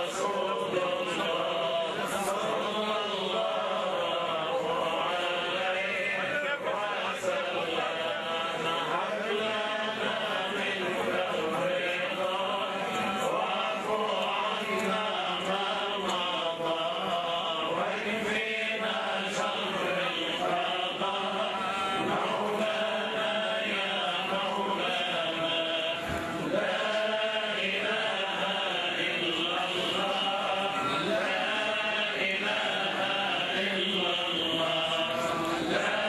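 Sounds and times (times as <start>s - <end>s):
crowd of men chanting: 0.0s - 36.0s.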